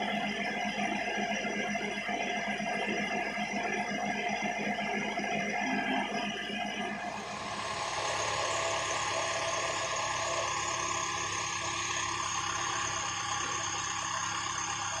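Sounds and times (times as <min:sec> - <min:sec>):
diesel engine running: 0:07.1 - 0:15.0.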